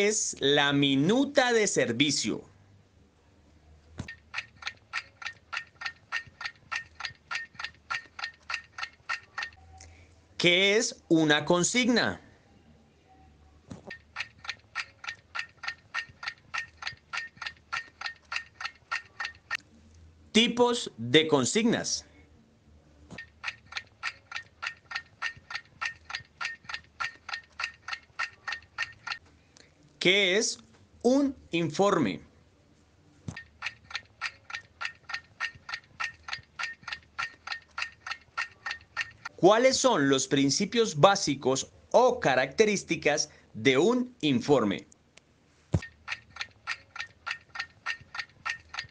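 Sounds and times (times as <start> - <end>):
clock ticking: 4.0 - 9.7, 13.8 - 19.6, 23.1 - 29.2, 33.3 - 39.8, 45.8 - 48.9.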